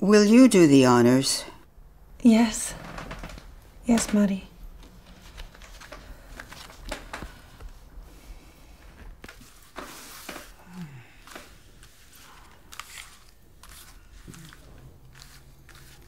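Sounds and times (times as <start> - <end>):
cards shuffled and sliding: 11.2 - 16.0.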